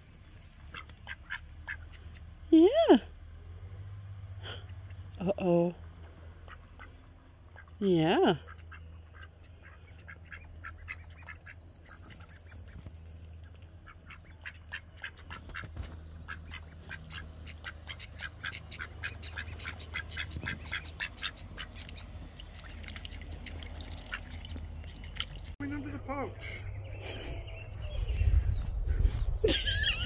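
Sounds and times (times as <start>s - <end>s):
low steady hum: 0.0s - 30.0s
ducks quacking softly: 0.6s - 2.4s, 6.3s - 27.2s.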